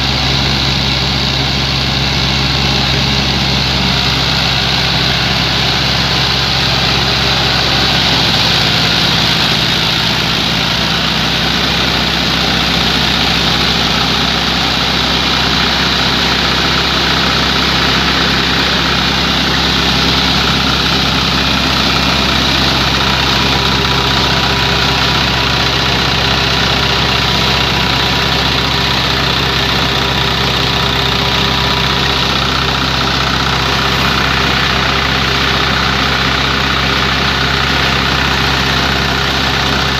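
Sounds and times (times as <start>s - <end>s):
thresher rushing noise: 0.0s - 39.9s
tractor engine running under load: 0.0s - 39.9s.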